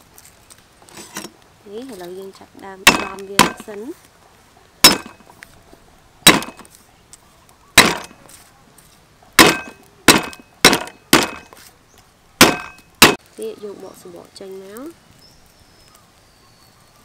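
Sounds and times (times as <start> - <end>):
cleaver whacking chopping board: 6.3 - 6.7, 7.8 - 8.2, 9.4 - 11.5.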